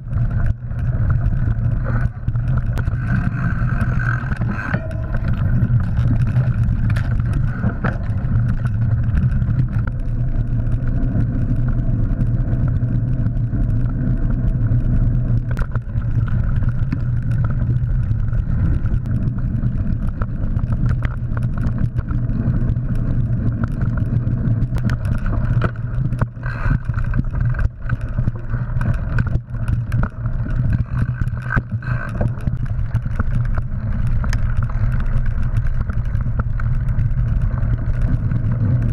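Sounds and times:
bike rattling over bumps: 0.0s - 38.9s
bike tyres rumbling on dirt: 0.0s - 38.9s
wind on camera: 0.0s - 38.9s.

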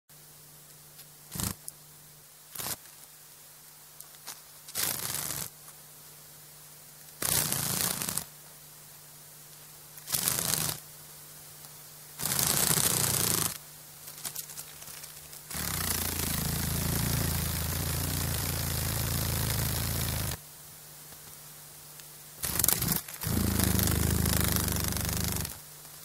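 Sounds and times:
dragonfly wings fluttering: 1.3s - 1.7s, 2.5s - 3.1s, 4.1s - 5.6s, 7.2s - 8.3s, 10.0s - 10.9s, 12.2s - 20.4s, 22.4s - 25.6s.

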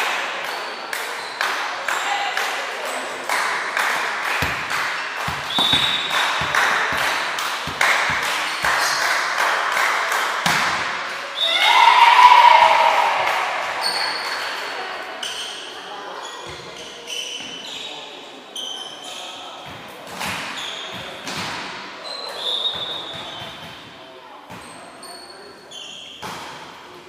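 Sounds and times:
echoing knocks: 4.4s - 9.0s
ball and feet thudding on floor: 5.3s - 8.3s
people shouting: 11.4s - 13.6s.

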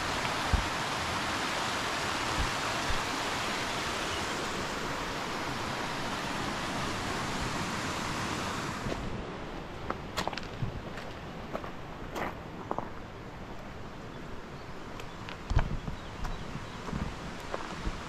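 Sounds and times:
fast-flowing stream water: 0.0s - 9.7s.

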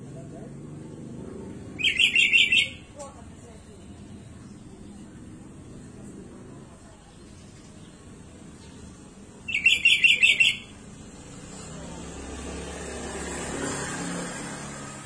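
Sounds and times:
vehicle passing: 0.0s - 7.3s, 8.0s - 15.0s
bird chirping: 1.8s - 3.0s, 9.4s - 10.8s.

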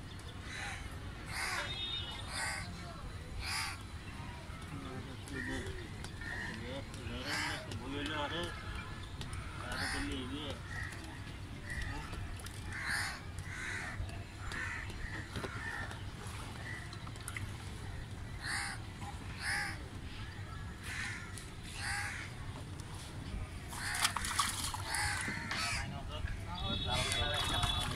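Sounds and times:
crows cawing: 0.5s - 1.6s, 2.3s - 2.7s, 3.4s - 3.8s, 5.4s - 7.7s, 9.4s - 12.1s, 12.7s - 16.0s, 18.4s - 18.8s, 19.4s - 19.8s, 20.5s - 22.3s, 23.8s - 25.9s
water splash: 23.7s - 25.4s, 26.9s - 27.9s.

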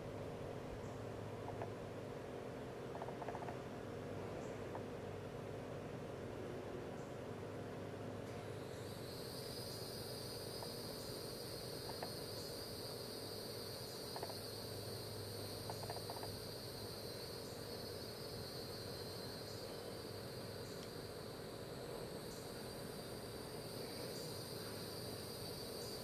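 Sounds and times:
outdoor hum and hiss: 0.0s - 26.0s
faint ticks: 1.4s - 1.8s, 10.6s - 11.0s, 11.8s - 12.4s, 14.1s - 14.4s, 15.6s - 16.4s, 20.6s - 21.0s
high-pitched insect trill: 8.4s - 26.0s.

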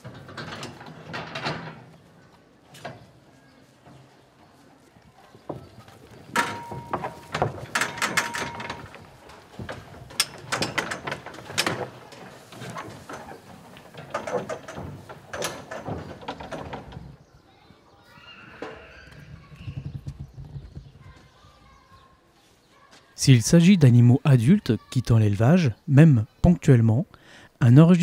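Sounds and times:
metal hurdles knocking and clanking: 6.3s - 17.2s.

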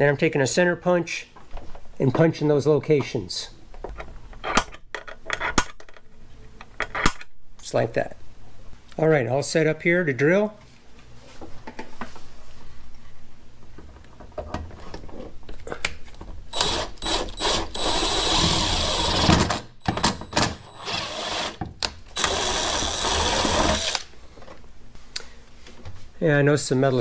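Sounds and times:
drill boring through metal: 16.5s - 19.6s, 20.6s - 21.6s, 22.2s - 24.1s.

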